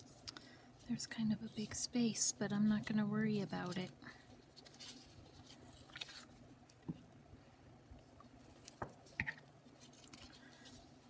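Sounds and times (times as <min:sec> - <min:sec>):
paper rustling and crinkling: 0:02.8 - 0:06.8, 0:08.4 - 0:11.0
sharp paper crackles: 0:03.5 - 0:06.4.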